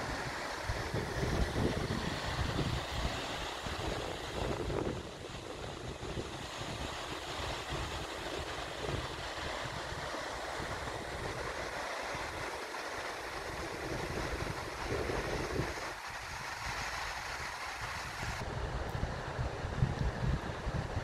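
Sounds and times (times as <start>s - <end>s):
wind buffeting microphone: 0.0s - 12.5s, 13.2s - 21.0s
waterfall rushing: 0.0s - 18.7s.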